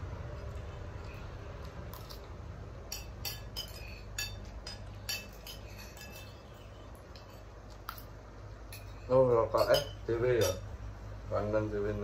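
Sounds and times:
cutlery clinking on plates: 2.9s - 10.8s.

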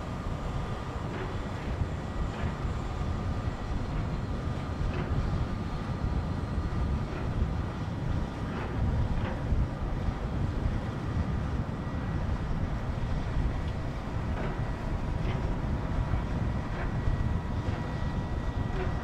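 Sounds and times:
low ship rumble: 0.0s - 19.0s.

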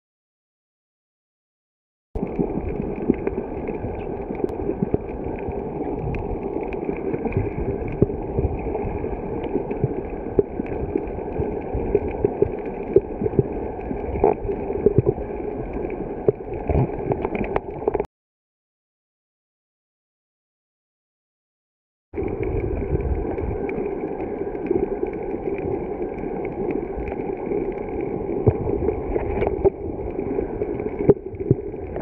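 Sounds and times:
muffled underwater rumble and gurgle: 2.2s - 18.1s, 22.2s - 32.0s
small underwater pops and clicks: 9.4s - 15.2s, 16.2s - 18.1s, 28.4s - 29.8s, 30.7s - 32.0s.

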